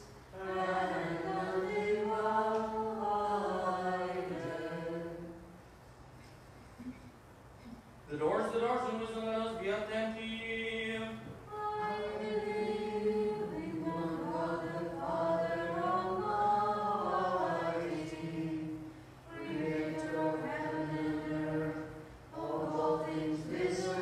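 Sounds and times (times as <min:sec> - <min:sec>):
voices chanting in harmony: 0:00.0 - 0:05.6, 0:10.9 - 0:24.0.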